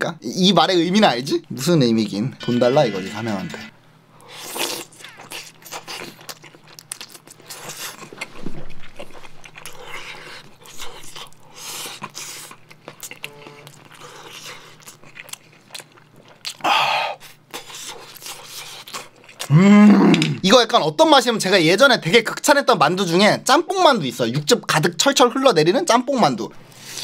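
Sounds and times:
chewing food: 4.2 - 19.5.

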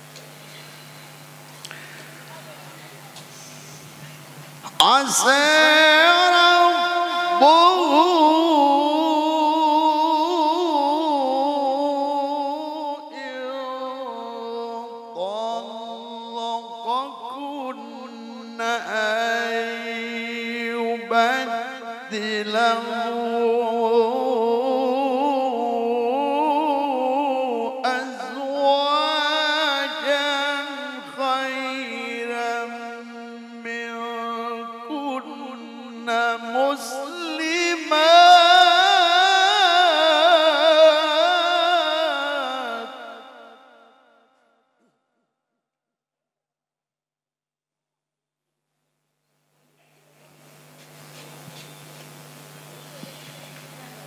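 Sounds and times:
man reciting melodically: 4.1 - 43.8.

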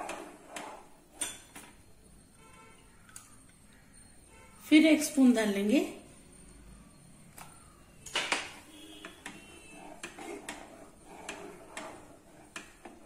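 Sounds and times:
plastic spatula scraping a pan: 8.9 - 13.0.

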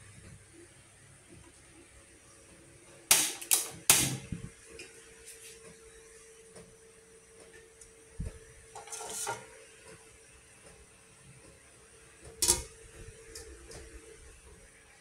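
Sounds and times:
metal pot lid clanking: 8.8 - 9.5, 12.4 - 12.7.

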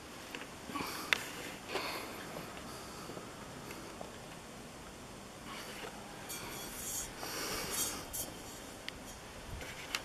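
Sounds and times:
soft hissing puffs: 0.7 - 4.1, 5.4 - 10.0
close rustling and handling noise: 5.5 - 10.0.

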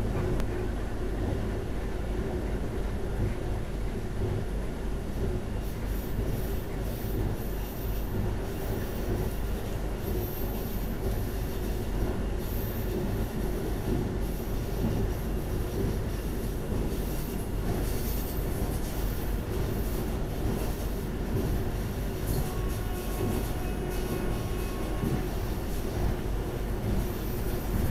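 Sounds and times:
train rumbling on rails: 0.0 - 27.9.

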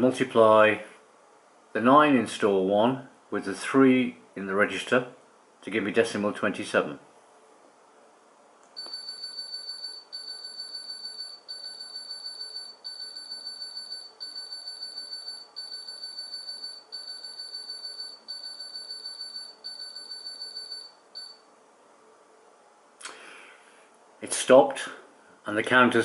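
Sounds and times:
high-pitched electronic tone bursts: 8.8 - 21.4.

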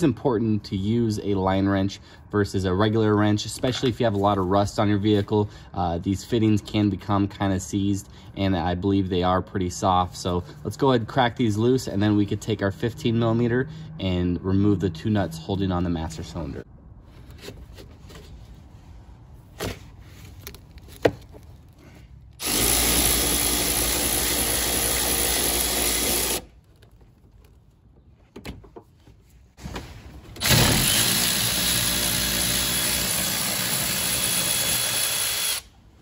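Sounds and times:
electric ratchet running: 22.4 - 26.5, 30.4 - 35.7.

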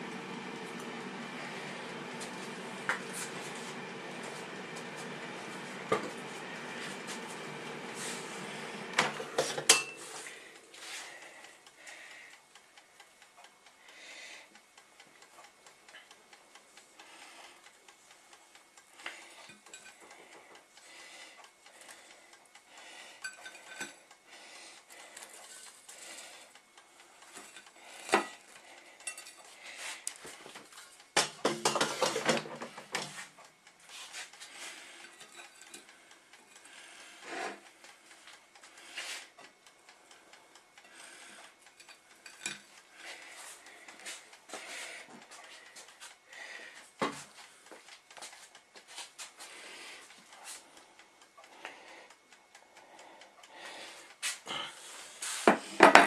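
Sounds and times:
plate and utensils clinking: 9.1 - 10.0.

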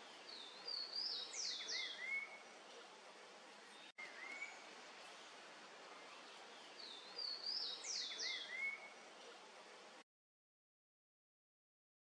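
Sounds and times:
faint steady hiss: 0.0 - 10.0
birds whistling: 0.3 - 2.4, 4.0 - 4.6.

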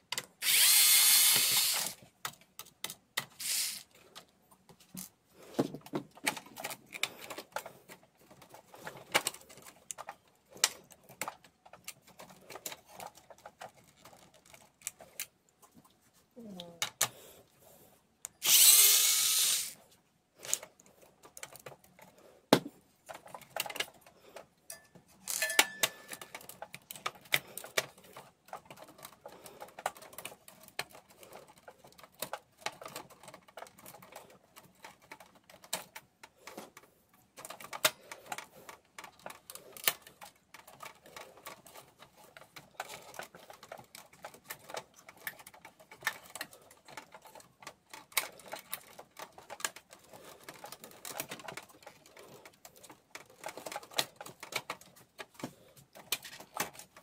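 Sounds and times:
clicks and rattles of plastic parts: 0.0 - 17.3, 18.2 - 57.0.

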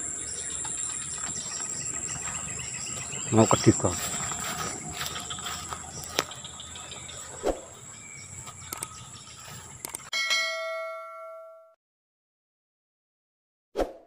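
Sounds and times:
faint clicks: 9.8 - 10.1
notification bell chime: 10.1 - 11.8.

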